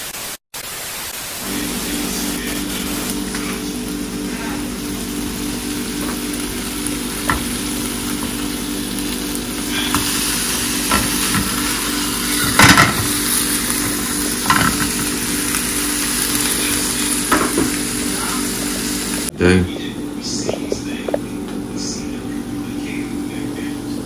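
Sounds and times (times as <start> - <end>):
meat sizzling in frying pan: 0.7 - 19.3
spatula knocking on pan: 7.2 - 7.6, 12.5 - 13.2.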